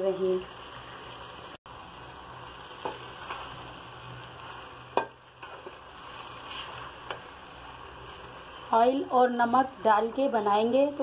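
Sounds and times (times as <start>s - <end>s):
low sizzle: 0.0s - 11.0s.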